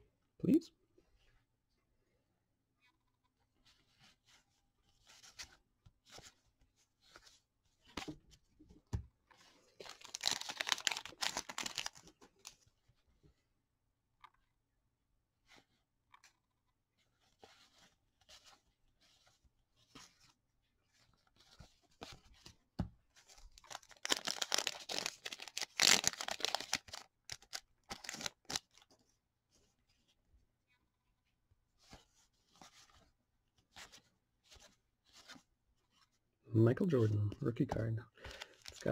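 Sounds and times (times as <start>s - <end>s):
cards rustling: 9.3s - 12.6s, 23.2s - 29.1s, 38.2s - 38.9s
wrapper crinkling and tearing: 9.8s - 12.5s, 23.6s - 28.8s.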